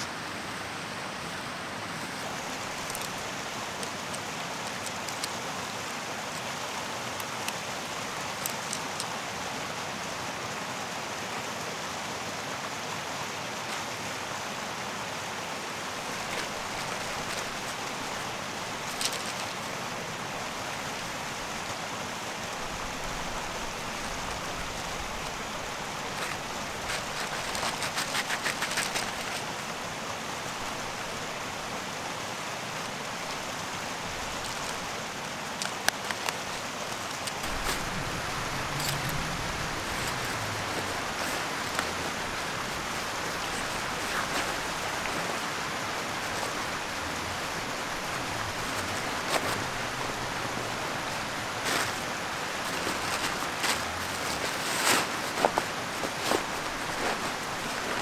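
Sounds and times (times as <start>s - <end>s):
mountain stream rushing: 0.0s - 58.0s
camping gear rattling clicks: 2.3s - 5.7s, 8.2s - 9.2s, 16.0s - 19.8s, 24.0s - 29.8s, 32.8s - 58.0s.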